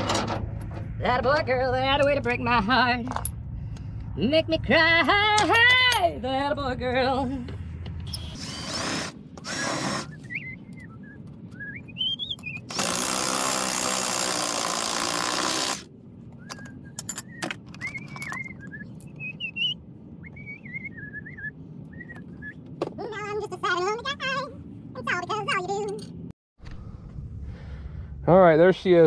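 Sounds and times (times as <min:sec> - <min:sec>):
man whistling a tune: 0:10.0 - 0:12.6, 0:17.8 - 0:22.6.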